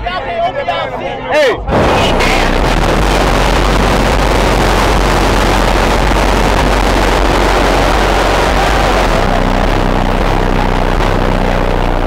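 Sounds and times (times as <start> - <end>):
loud car engine running: 1.7 - 12.0.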